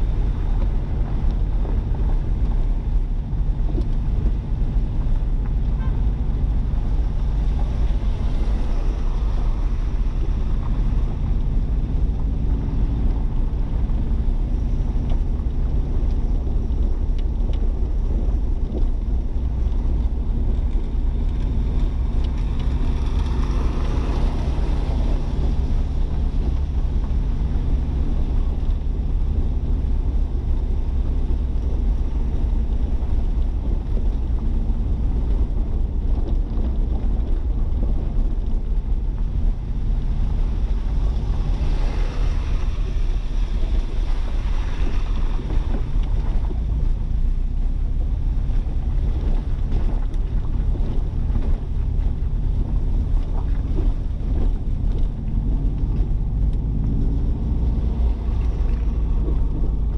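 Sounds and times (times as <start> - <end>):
low engine hum: 0.0 - 59.9
road noise rumble inside car: 0.0 - 59.9
tire hiss on wet road: 4.5 - 16.3, 21.0 - 29.1, 38.2 - 50.4.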